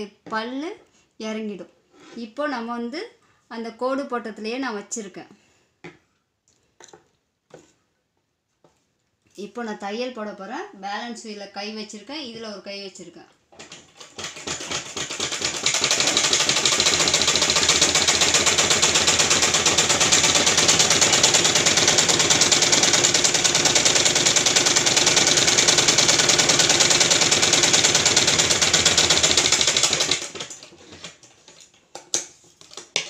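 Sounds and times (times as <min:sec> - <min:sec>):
sewing machine clattering: 0:13.6 - 0:31.5.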